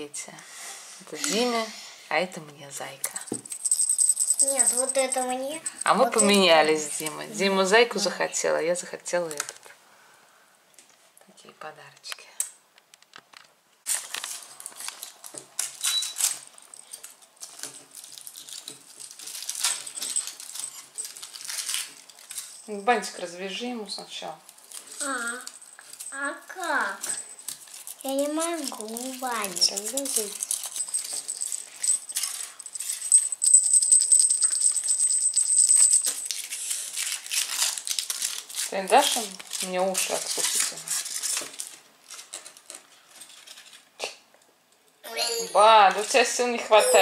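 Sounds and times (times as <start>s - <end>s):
foil wrapper crinkling and tearing: 13.9s - 22.6s, 27.4s - 31.5s, 36.1s - 44.0s.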